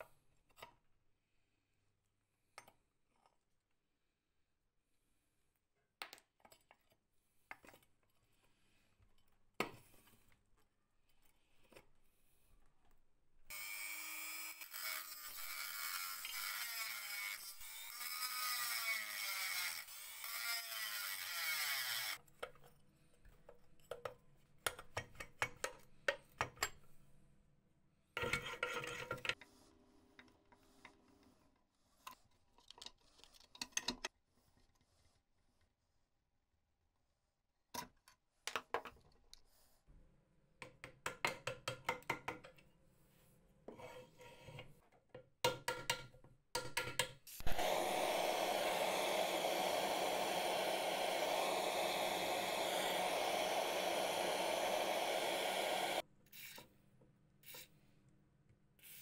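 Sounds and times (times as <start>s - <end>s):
rotary tool grinding metal: 13.5s - 22.2s.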